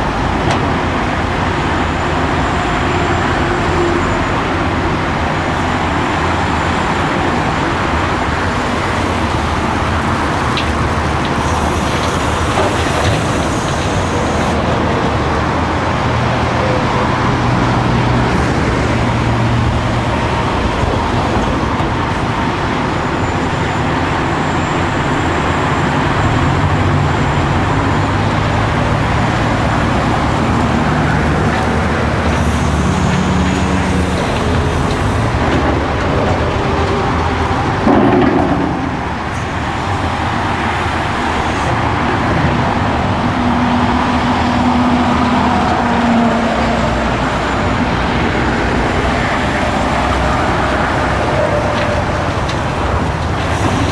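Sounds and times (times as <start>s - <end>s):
excavator diesel engine: 0.0s - 53.9s.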